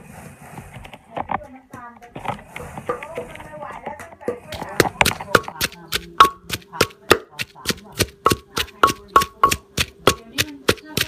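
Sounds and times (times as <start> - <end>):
pestle pounding in mortar: 2.6 - 11.0.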